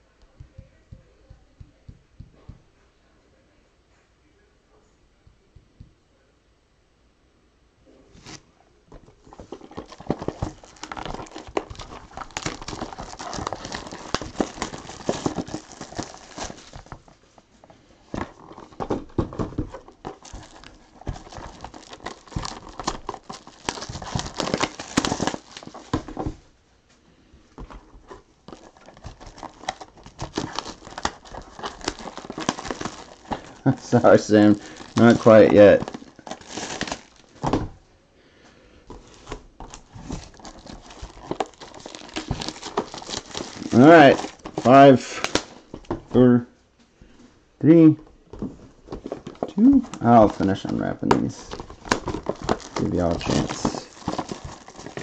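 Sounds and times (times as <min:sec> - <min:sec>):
plastic wrap crinkling and tearing: 0:09.1 - 0:17.2, 0:18.0 - 0:26.4, 0:27.6 - 0:37.7, 0:38.9 - 0:46.3, 0:48.6 - 0:55.0
cardboard boxes knocking: 0:18.1 - 0:26.4.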